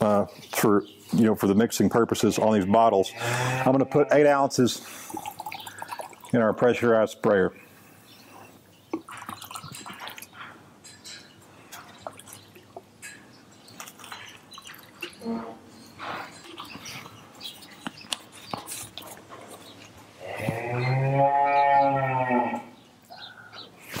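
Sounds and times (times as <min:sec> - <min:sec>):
drips and splashes: 0:05.0 - 0:06.4, 0:08.9 - 0:10.4, 0:11.7 - 0:15.4.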